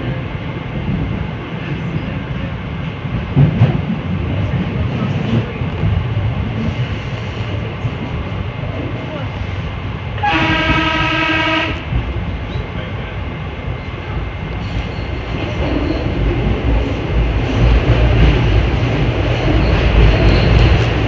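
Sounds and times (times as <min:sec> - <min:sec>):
train wheels rumbling on rails: 0:00.0 - 0:21.0
train horn: 0:10.2 - 0:11.9.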